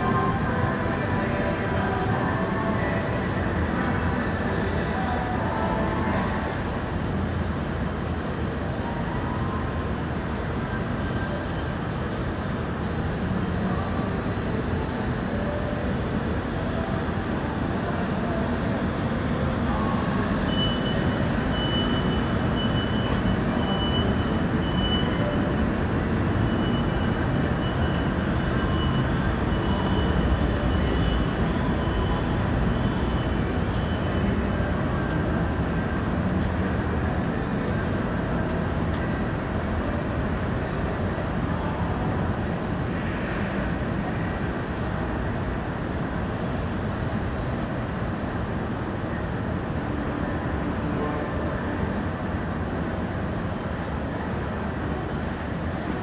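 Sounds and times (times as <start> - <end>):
faint high whine: 0.0 - 56.0
low rumbling ambience: 0.0 - 56.0.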